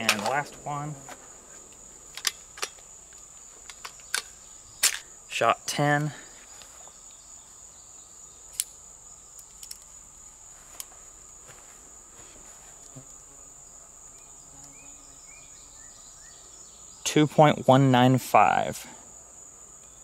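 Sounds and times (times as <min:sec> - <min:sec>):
high-pitched insect chorus: 0:00.0 - 0:20.0.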